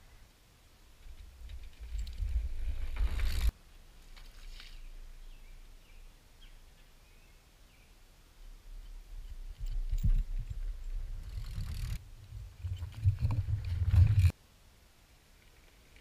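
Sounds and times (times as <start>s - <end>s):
mountain bike passing: 1.0s - 3.6s, 9.2s - 14.4s
bike clicks on trail: 1.0s - 4.8s, 8.8s - 12.0s, 12.6s - 14.3s.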